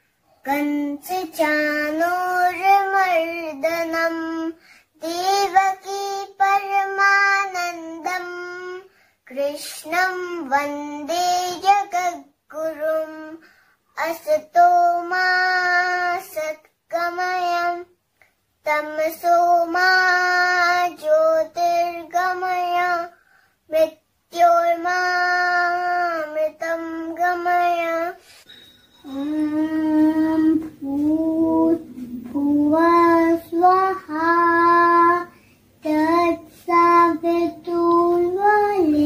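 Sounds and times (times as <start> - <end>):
girl chanting: 23.7 - 28.3, 29.0 - 39.0.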